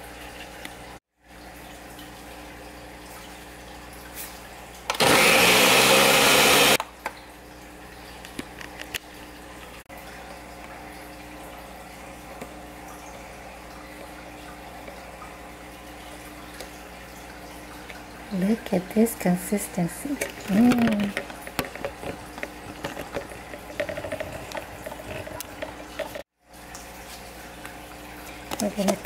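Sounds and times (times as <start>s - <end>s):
blender running: 4.9s - 6.8s.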